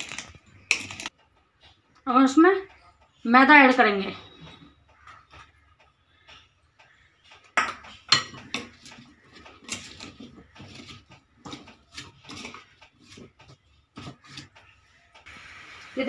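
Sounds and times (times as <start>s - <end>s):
stirring in glass bowl: 0.0s - 1.1s, 6.2s - 15.2s.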